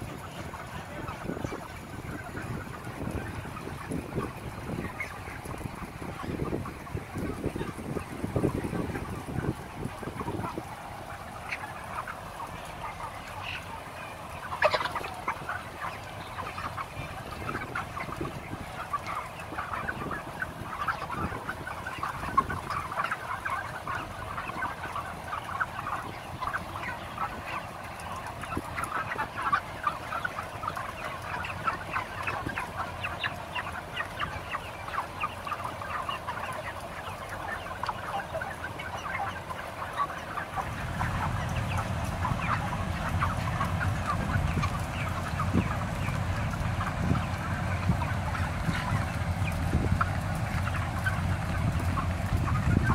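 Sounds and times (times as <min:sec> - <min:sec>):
chickens clucking: 0:00.0 - 0:52.9
exhaust fans humming: 0:40.6 - 0:52.9.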